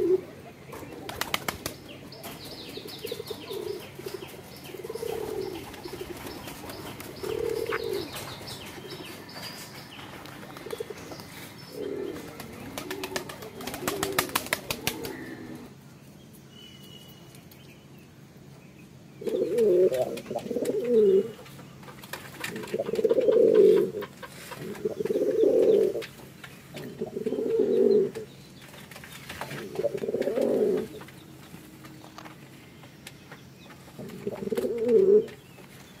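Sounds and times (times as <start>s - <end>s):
pigeons cooing: 0.0s - 15.8s, 19.2s - 28.4s, 29.3s - 32.2s, 33.8s - 35.5s
wing flaps: 1.0s - 1.9s, 12.1s - 15.2s.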